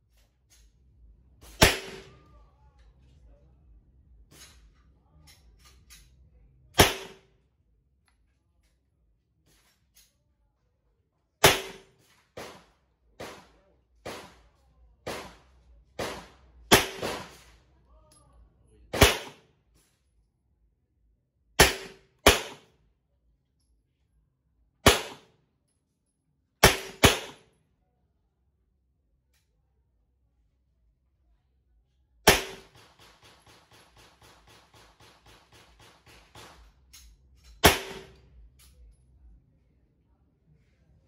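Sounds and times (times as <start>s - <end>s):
pistol shots: 1.5s - 2.2s, 6.8s - 7.3s, 11.4s - 12.6s, 16.0s - 17.5s, 18.9s - 19.4s, 21.6s - 22.7s, 24.8s - 25.3s, 26.6s - 27.5s, 32.2s - 36.7s, 37.6s - 38.2s.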